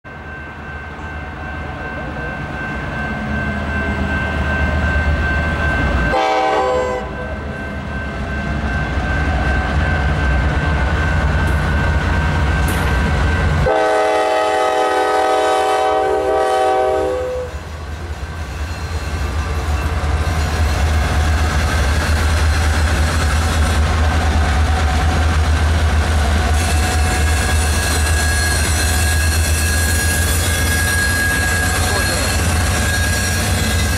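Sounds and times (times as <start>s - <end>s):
diesel locomotive engine rumble: 0.1s - 33.9s
train air horn blasts: 6.1s - 7.2s, 13.6s - 17.6s.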